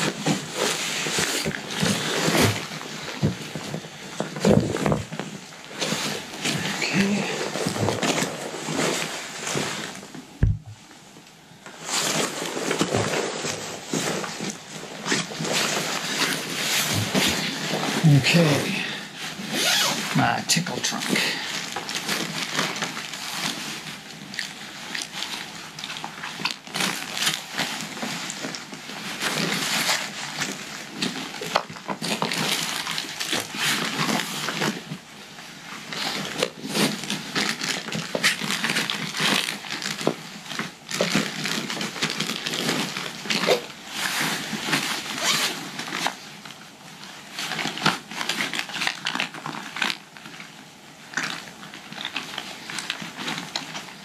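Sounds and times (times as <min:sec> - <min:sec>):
nylon and plastic bags rustling: 0:00.0 - 0:54.0.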